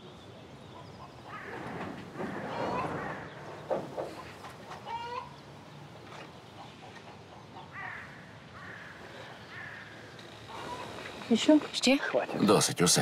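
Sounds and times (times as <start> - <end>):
crow cawing: 1.3 - 1.6, 7.7 - 11.3.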